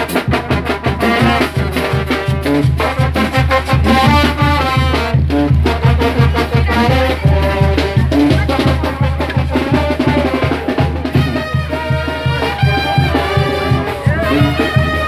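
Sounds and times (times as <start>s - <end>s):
bass drum beat: 0.0s - 15.0s
brass band playing: 0.0s - 15.0s.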